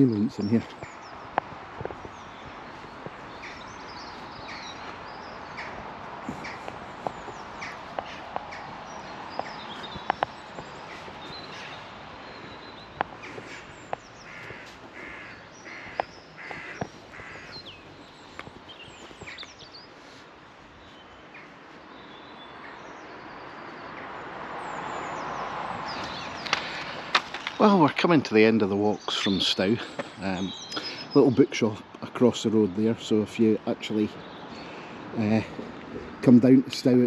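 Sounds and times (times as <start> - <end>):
small birds chirping: 0.0 - 37.0
crow cawing: 3.2 - 9.6, 10.8 - 17.9.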